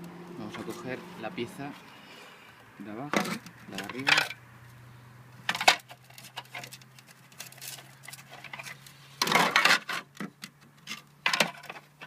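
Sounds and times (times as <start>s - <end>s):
scraping rustle: 5.5s - 12.0s.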